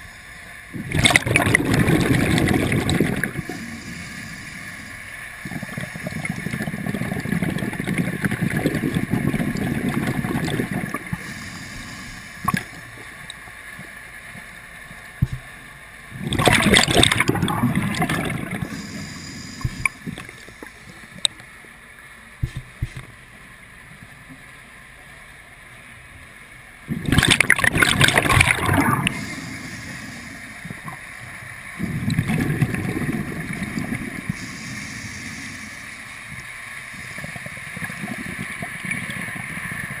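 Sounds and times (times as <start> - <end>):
diver breathing through regulator: 0.0 - 13.0, 16.4 - 21.1, 28.1 - 31.1, 31.8 - 37.7
bubbles gurgling: 0.7 - 11.4, 12.4 - 12.8, 16.1 - 20.4, 26.9 - 29.7, 31.8 - 34.4.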